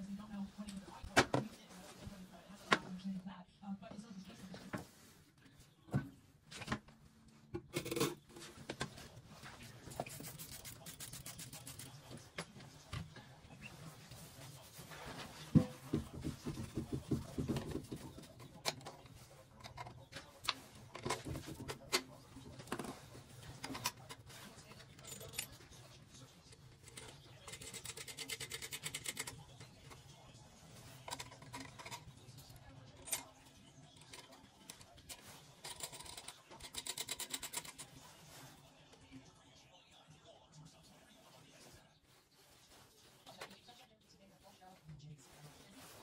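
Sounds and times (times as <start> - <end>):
metallic clicking and scraping: 34.0 - 38.0.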